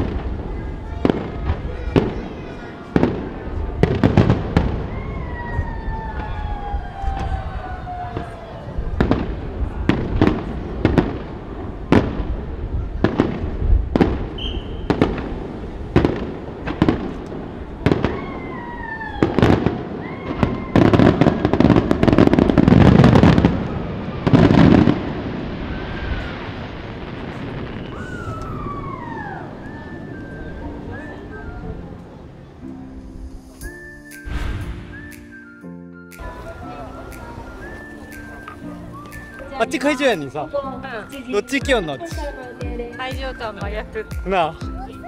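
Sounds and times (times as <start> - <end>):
crackling firework bursts: 0.0 - 31.4, 33.3 - 40.0
firework bangs: 0.0 - 31.4, 34.2 - 35.5
falling firework whistles: 4.1 - 9.2, 14.2 - 15.3, 17.8 - 31.6, 33.4 - 42.6.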